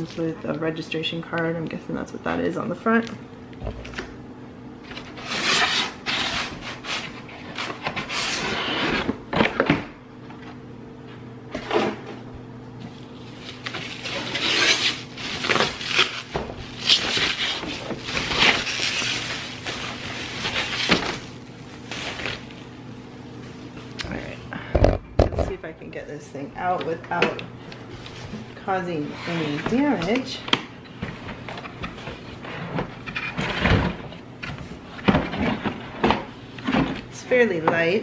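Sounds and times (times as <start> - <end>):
plastic bag rustling: 13.0 - 22.7.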